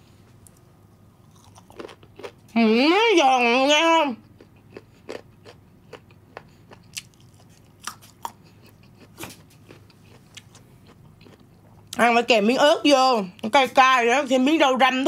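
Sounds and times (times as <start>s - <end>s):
crunchy chewing: 0.3s - 2.6s, 4.2s - 12.0s.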